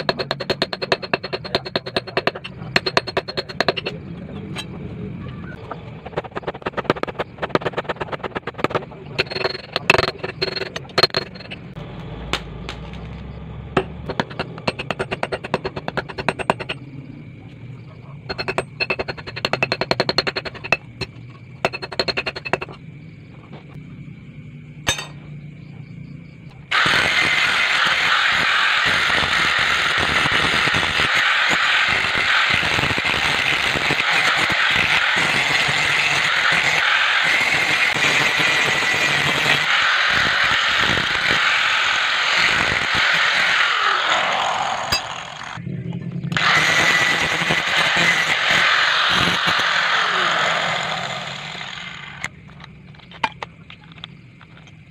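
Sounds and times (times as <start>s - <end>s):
angle grinder grinding steel: 6.0s - 11.8s, 26.7s - 45.6s, 46.4s - 52.3s.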